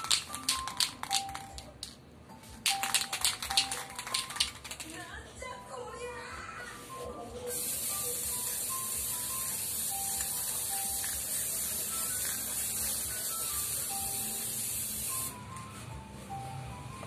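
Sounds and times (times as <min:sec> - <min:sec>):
soft background music: 0:00.0 - 0:17.0
aerosol spray hissing: 0:07.5 - 0:15.4.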